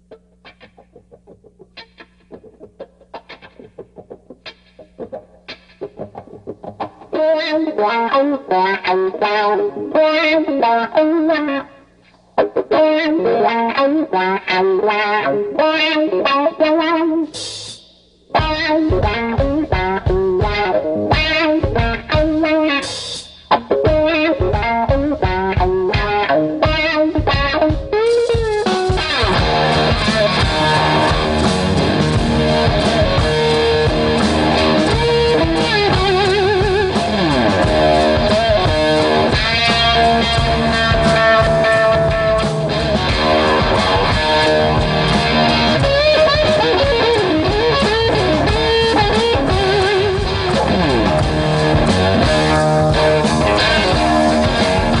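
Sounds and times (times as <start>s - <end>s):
rock music with electric guitar: 0.0s - 55.0s
bass line: 28.9s - 55.0s.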